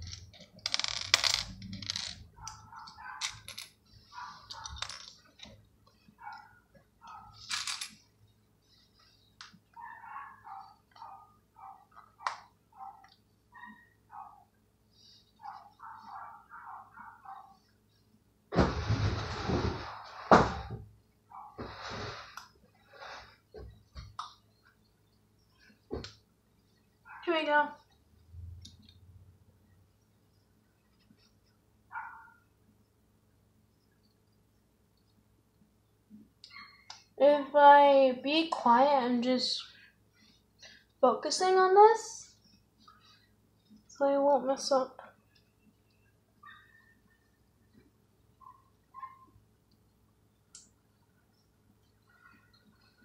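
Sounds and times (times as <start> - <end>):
plastic toy bricks clattering: 0.0 - 2.2, 4.5 - 5.3.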